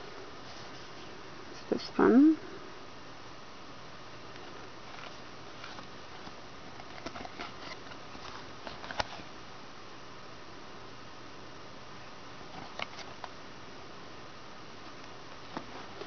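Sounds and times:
background hiss: 0:00.0 - 0:16.0
card rustling and tapping: 0:04.9 - 0:09.3, 0:12.5 - 0:13.4.

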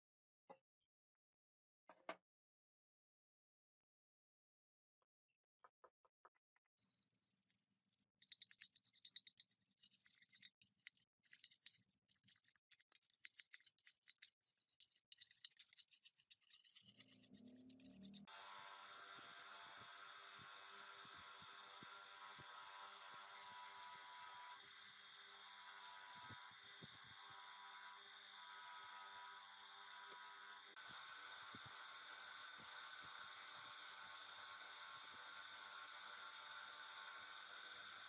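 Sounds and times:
bench grinder motor running: 0:17.5 - 0:38.0.

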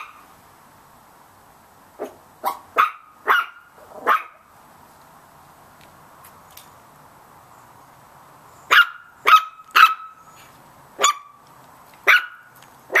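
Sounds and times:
puppies barking high-pitched: 0:00.0 - 0:00.3, 0:02.0 - 0:04.5, 0:08.7 - 0:10.4, 0:11.0 - 0:11.4, 0:12.0 - 0:13.0.

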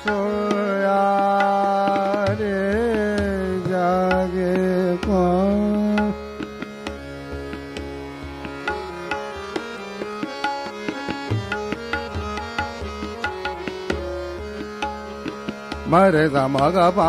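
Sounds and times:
person singing: 0:00.0 - 0:06.3
tabla strokes: 0:00.0 - 0:17.0.

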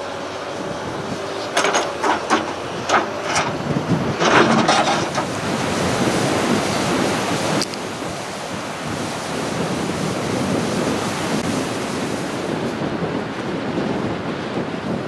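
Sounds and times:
wind gusting on microphone: 0:00.0 - 0:15.0
surf breaking on beach: 0:01.9 - 0:15.0.

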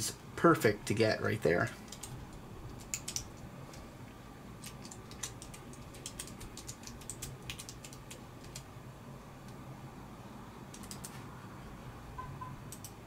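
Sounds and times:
low steady hum: 0:00.0 - 0:13.0
computer keyboard keys clicking: 0:01.9 - 0:03.8, 0:04.6 - 0:08.7, 0:10.7 - 0:11.2, 0:12.7 - 0:13.0.

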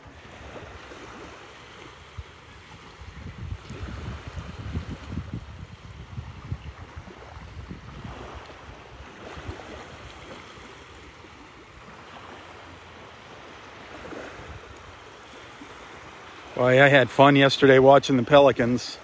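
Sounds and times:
small waves washing on shore: 0:00.0 - 0:19.0
wind buffeting microphone: 0:02.0 - 0:12.4, 0:13.8 - 0:15.0.

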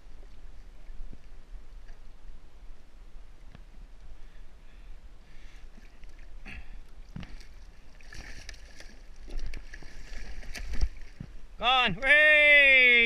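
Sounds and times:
water splashing against a kayak: 0:05.2 - 0:13.0.

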